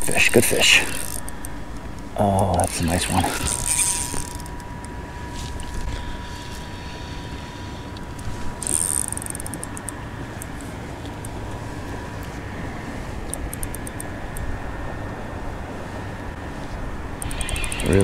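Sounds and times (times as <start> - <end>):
spinning reel and line: 0.0 - 1.6, 2.6 - 4.6, 8.6 - 10.0, 17.2 - 18.0
reel ticking: 0.0 - 6.6, 7.3 - 11.4, 13.3 - 14.5, 17.2 - 18.0.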